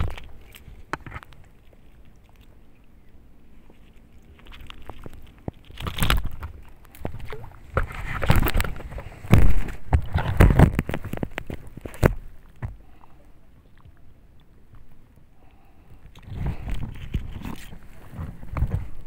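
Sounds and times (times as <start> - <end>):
handling bumps and rustles: 4.6 - 12.8.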